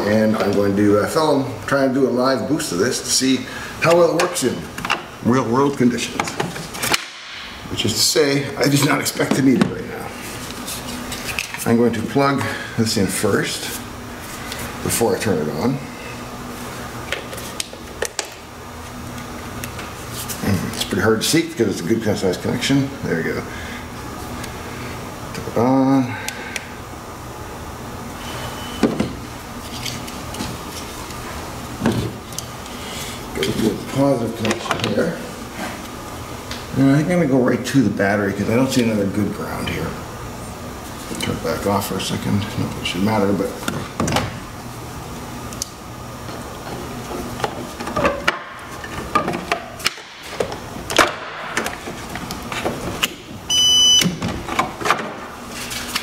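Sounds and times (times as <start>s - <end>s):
steady low hum: 0.0s - 56.0s
high-pitched beep: 53.5s - 54.1s.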